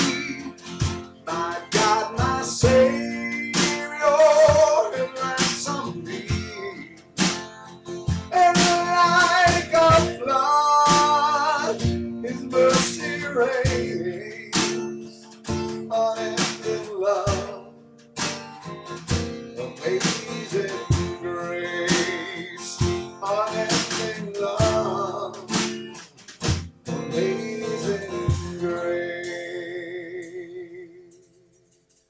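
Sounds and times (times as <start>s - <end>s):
drum beat: 0.0s - 2.9s, 3.5s - 6.6s, 7.2s - 10.2s, 10.8s - 14.0s, 16.4s - 17.6s, 18.2s - 21.2s, 21.9s - 26.9s, 28.3s - 28.6s
acoustic guitar playing: 0.0s - 32.0s.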